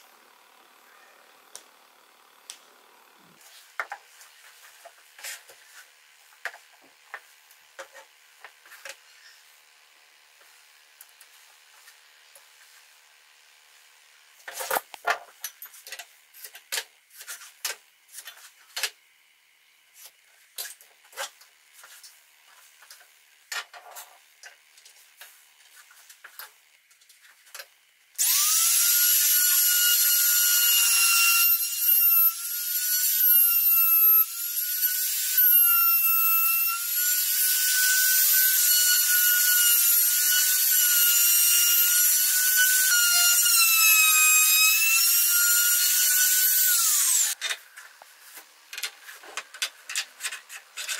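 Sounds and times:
trim router whining: 0:28.2 - 0:47.4.

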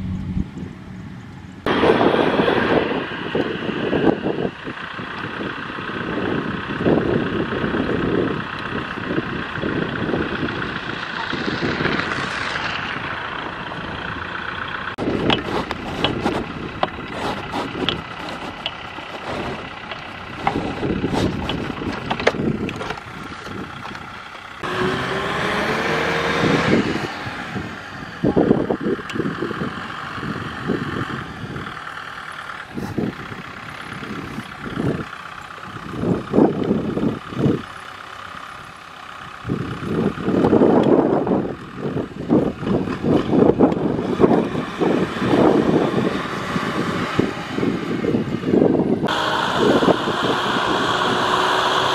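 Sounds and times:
tractor diesel engine running: 0:00.0 - 0:51.9
knocks and clunks: 0:15.0 - 0:24.1.

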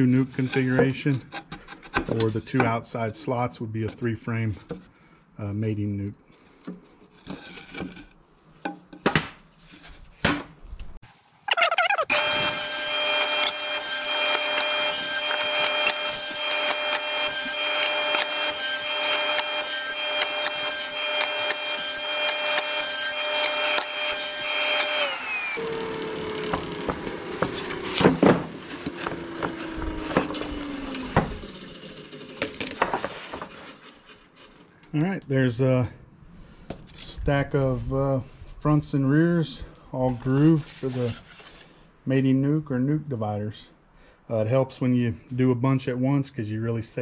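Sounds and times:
table saw whining: 0:11.8 - 0:34.4
saw blade winding down: 0:11.9 - 0:32.7.

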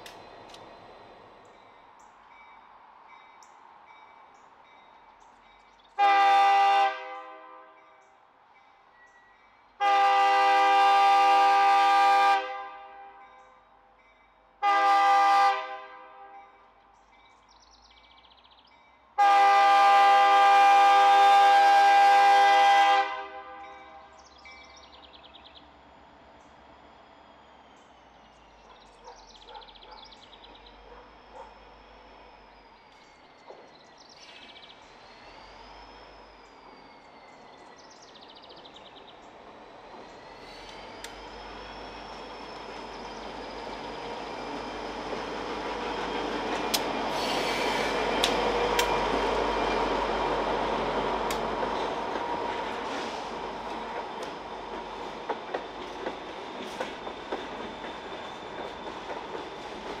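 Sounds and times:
diesel freight train passing: 0:00.0 - 1:00.0
faint high wavering squeal: 0:23.6 - 0:54.8
train wheels clacking over rail joints: 0:44.2 - 0:49.9, 0:51.1 - 1:00.0.

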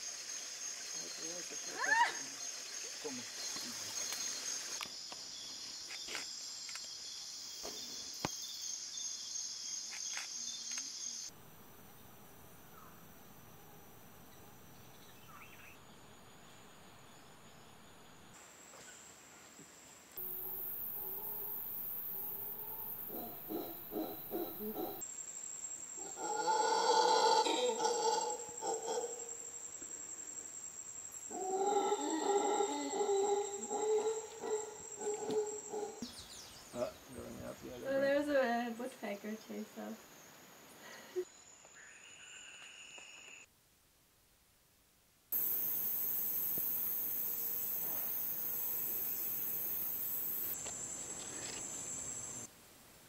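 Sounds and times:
insect chorus: 0:00.0 - 0:43.5, 0:45.3 - 0:52.5
howler monkeys roaring: 0:22.3 - 0:25.0, 0:26.0 - 0:29.2, 0:31.3 - 0:36.0.

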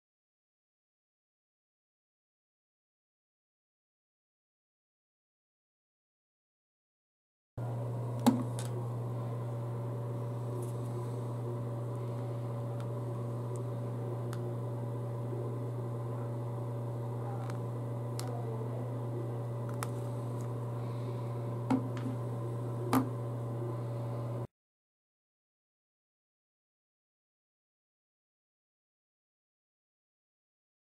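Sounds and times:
room hum: 0:07.6 - 0:24.5.

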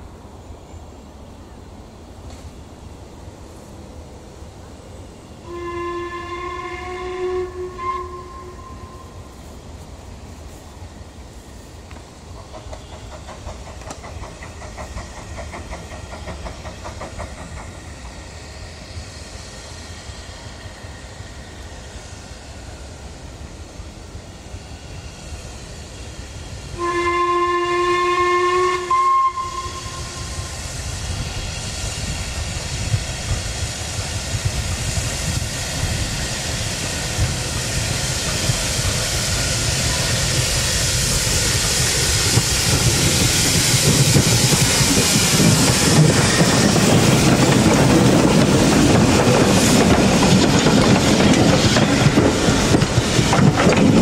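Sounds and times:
train approaching on rails: 0:00.0 - 0:54.0
steam locomotive whistle: 0:05.4 - 0:09.3, 0:26.7 - 0:30.7.

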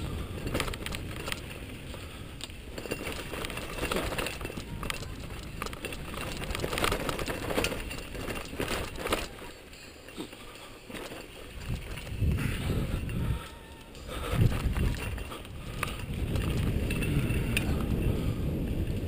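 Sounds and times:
tyres crunching over dirt and stones: 0:00.0 - 0:18.0
bike rattling and clicking: 0:00.0 - 0:19.0.

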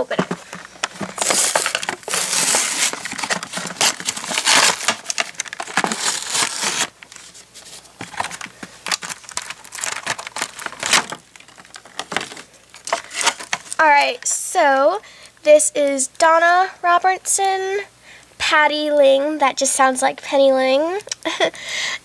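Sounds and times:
plastic crinkling: 0:00.0 - 0:14.2
cardboard tearing from plastic: 0:00.3 - 0:13.8.

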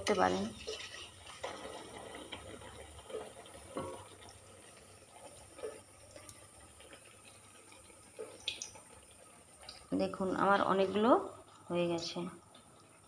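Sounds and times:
oil sizzling: 0:00.0 - 0:13.0.

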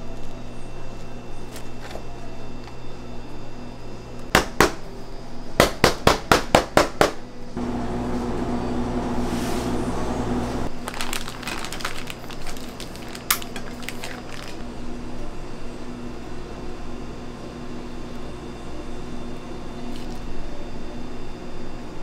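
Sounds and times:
steady low hum: 0:07.2 - 0:22.0.

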